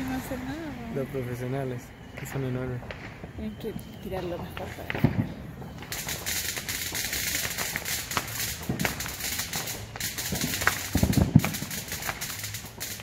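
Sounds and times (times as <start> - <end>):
distant fireworks popping and booming: 0.0 - 13.0
steady high hiss: 5.8 - 13.0.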